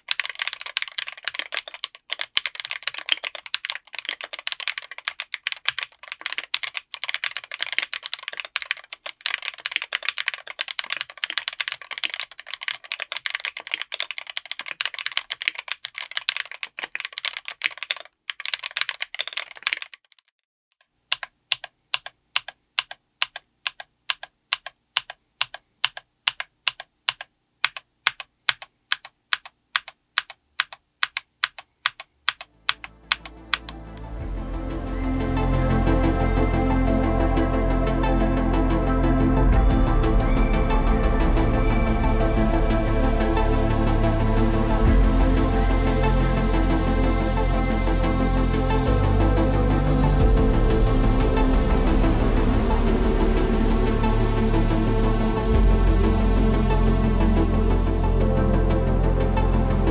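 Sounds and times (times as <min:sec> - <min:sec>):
mechanical keyboard typing: 0:00.0 - 0:20.4, 0:21.1 - 0:34.2.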